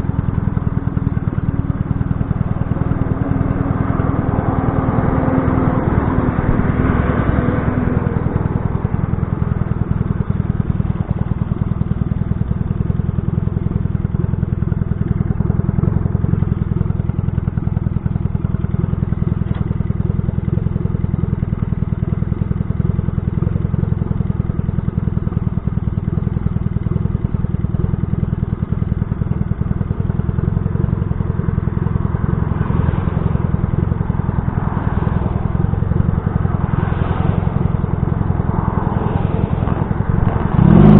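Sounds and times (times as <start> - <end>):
motorcycle engine idling: 0.0 - 40.9
car passing: 2.1 - 10.6, 31.3 - 40.9.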